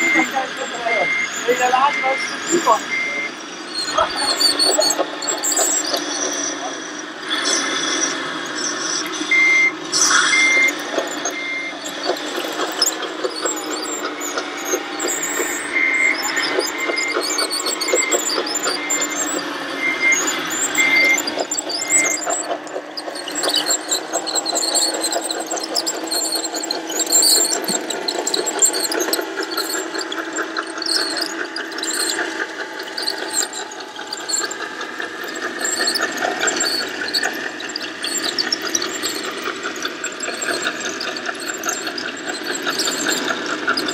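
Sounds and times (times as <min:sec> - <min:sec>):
short high beeps: 0:00.0 - 0:04.9, 0:09.4 - 0:11.8
electric motor whine: 0:00.0 - 0:43.9.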